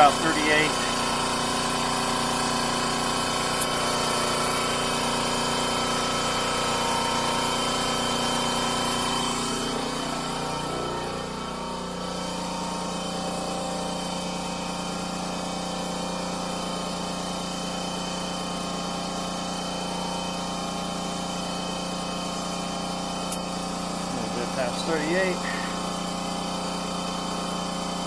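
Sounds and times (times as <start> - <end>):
air compressor running: 0.0 - 28.0.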